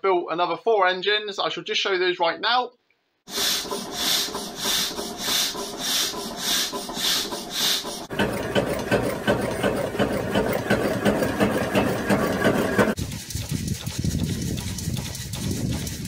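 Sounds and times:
engine rasping whoosh: 3.3s - 13.0s
engine rapid clatter: 3.3s - 16.0s.

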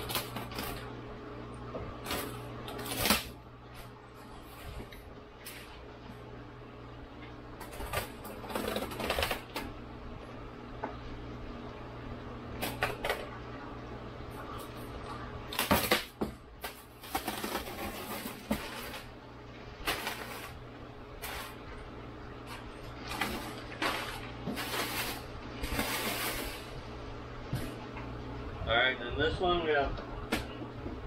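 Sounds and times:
cardboard and plastic rustling: 0.0s - 0.9s, 7.6s - 9.7s, 15.5s - 20.6s, 22.4s - 26.9s
steady low hum: 0.0s - 31.0s.

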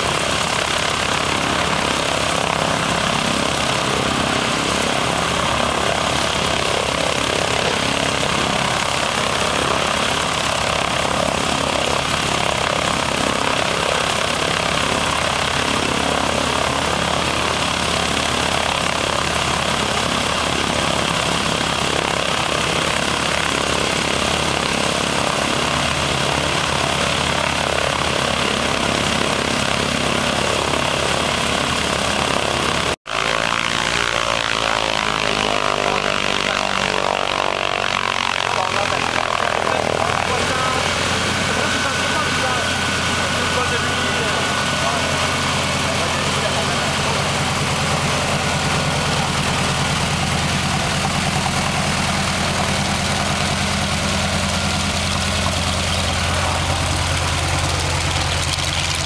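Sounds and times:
radial aircraft engine idling: 0.0s - 59.0s.

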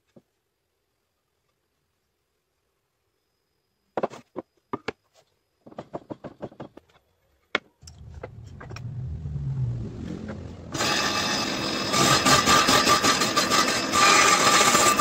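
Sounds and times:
wooden knocks and clatter: 5.6s - 8.8s
table saw motor humming: 7.8s - 14.4s.

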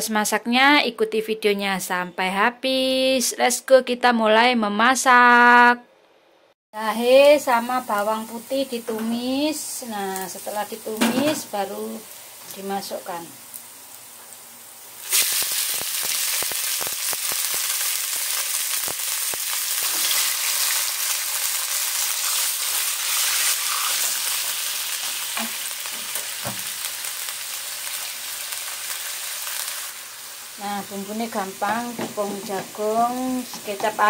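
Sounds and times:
meat sizzling in hot oil: 6.8s - 34.0s.

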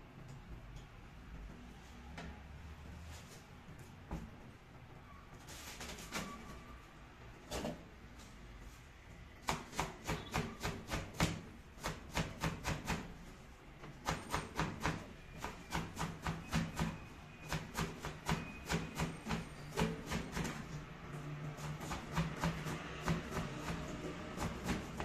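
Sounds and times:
knife chopping cabbage on board: 9.4s - 13.2s, 13.9s - 20.8s, 21.6s - 25.0s.

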